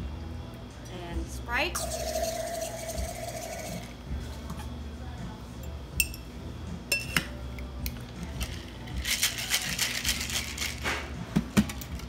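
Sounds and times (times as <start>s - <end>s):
ice rattling in shaker: 8.3s - 10.9s.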